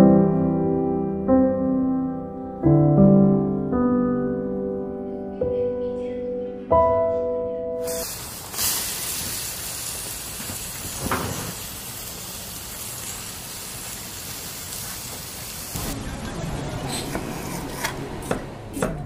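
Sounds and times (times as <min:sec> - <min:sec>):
food sizzling in a wok: 0:07.8 - 0:16.0.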